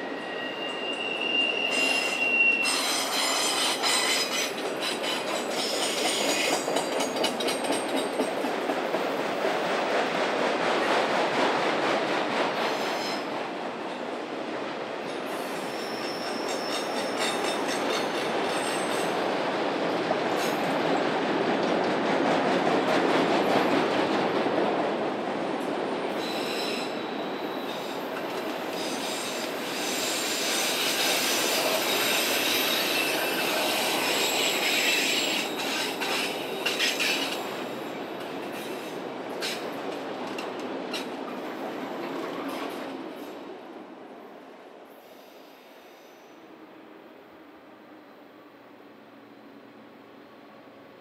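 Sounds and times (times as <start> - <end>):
high wheel squeal: 0.0 - 6.5, 28.8 - 37.4
train wheels rumbling on rail: 0.0 - 44.3.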